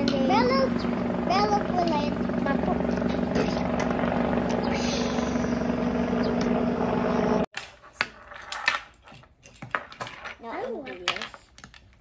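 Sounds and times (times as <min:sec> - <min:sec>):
toy engine drone: 0:00.2 - 0:07.5.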